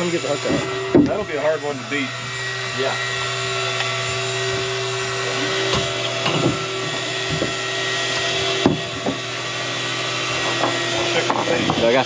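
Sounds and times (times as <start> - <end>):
boat motor humming: 0.0 - 12.0.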